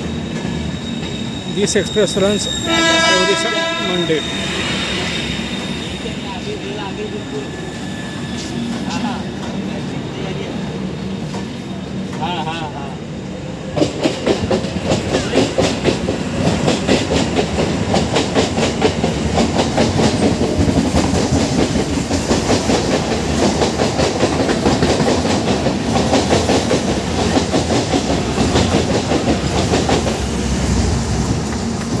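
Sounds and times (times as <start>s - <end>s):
train wheels clattering over rails: 13.7s - 32.0s.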